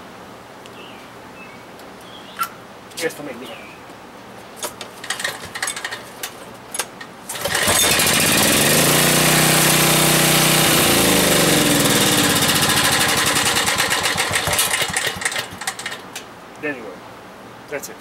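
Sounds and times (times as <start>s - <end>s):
generator engine running: 7.3s - 16.1s.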